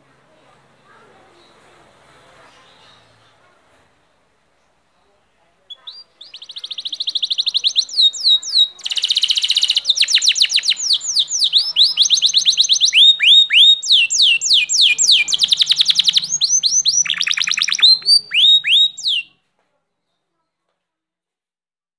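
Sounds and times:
canary singing trills: 5.7 - 19.4.

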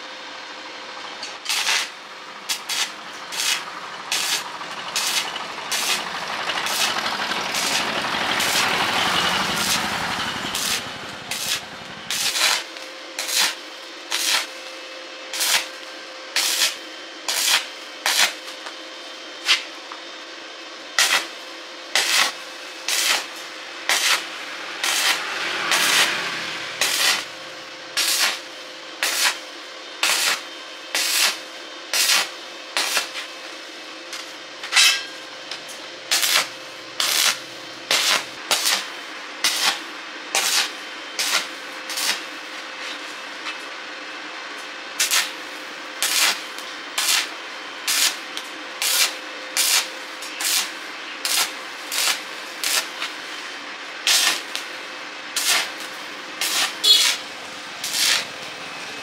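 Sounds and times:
steady low hum: 0.0 - 30.1.

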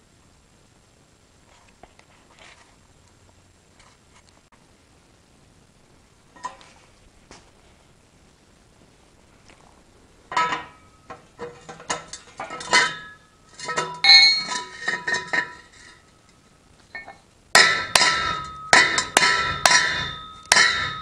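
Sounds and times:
metal tubes clanking: 10.3 - 16.2, 16.9 - 21.0
hard ringing metal blows: 11.8 - 16.2, 17.0 - 21.0.

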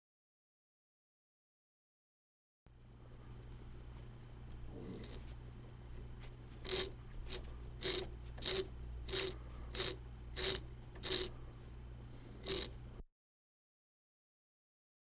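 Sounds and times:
low steady hum: 2.7 - 13.0.

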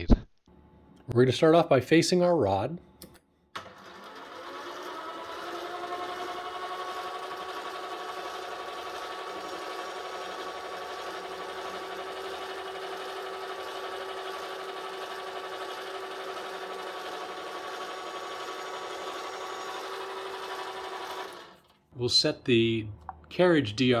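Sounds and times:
metal lathe motor whine: 3.8 - 21.6.

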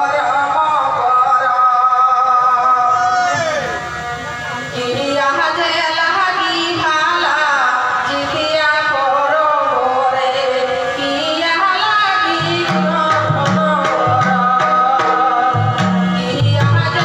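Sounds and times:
woman singing folk song: 4.8 - 17.0
instrumental accompaniment: 12.1 - 17.0
drum beats: 12.3 - 17.0.

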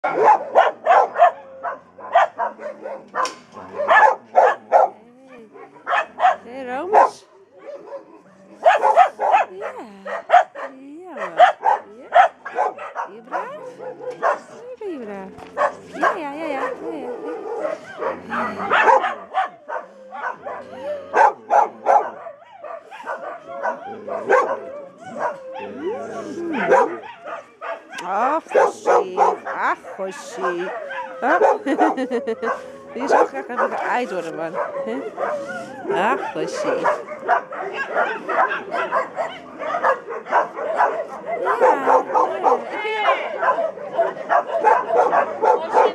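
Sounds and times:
dog barking: 0.0 - 14.8, 15.5 - 45.9
dog whining: 12.4 - 27.2.

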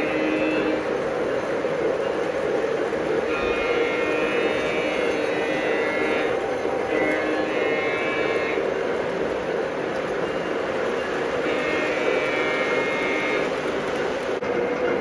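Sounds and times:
model train wheels rumbling on track: 0.0 - 15.0.

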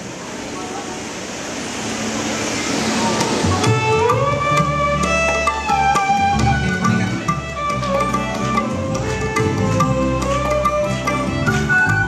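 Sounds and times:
sliding melody: 0.6 - 12.0
live band music: 2.8 - 12.0
drum rhythm: 3.1 - 12.0.

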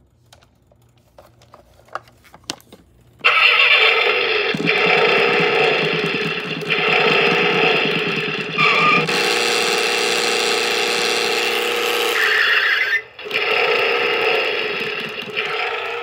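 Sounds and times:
electronic engine sound effects: 3.2 - 16.0
toy motor whirring: 3.2 - 16.0.

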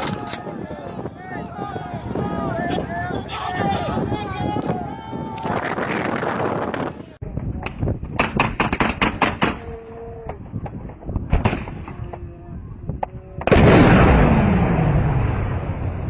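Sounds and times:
small-arms gunfire: 8.2 - 9.6.

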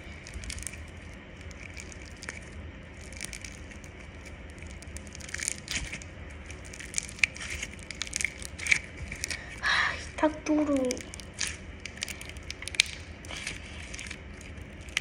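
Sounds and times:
crunchy slime crackling: 0.0 - 15.0.

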